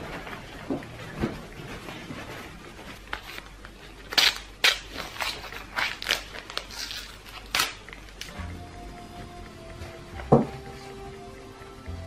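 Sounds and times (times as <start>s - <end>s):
bedding rustling: 0.0s - 4.1s.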